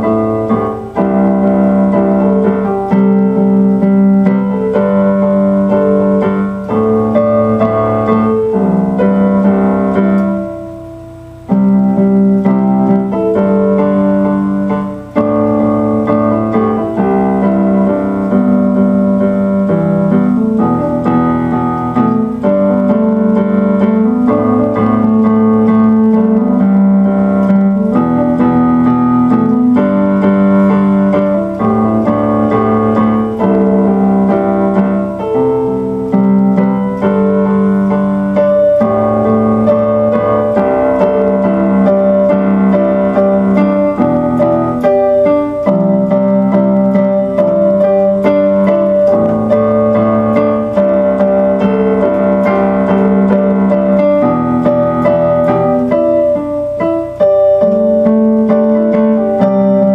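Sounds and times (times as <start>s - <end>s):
electronic keyboard piano chords: 0.0s - 59.9s.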